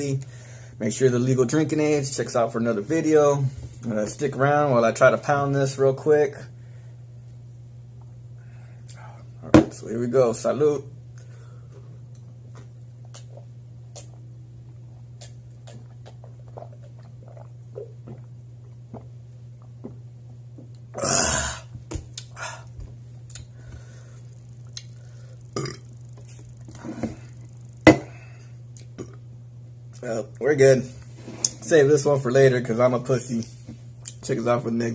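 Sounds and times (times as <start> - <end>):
steady low hum: 0.0 - 34.9
man swallowing gulps: 12.5 - 23.6, 24.6 - 26.0, 28.8 - 29.3
breaths and mouth sounds: 12.6 - 14.3, 15.0 - 20.0
man burping loudly: 20.9 - 21.7, 25.6 - 25.8.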